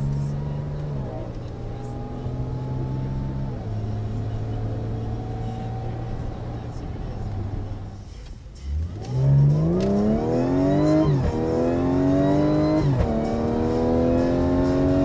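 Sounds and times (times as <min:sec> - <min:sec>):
engine and exhaust drone: 0:00.0 - 0:15.0.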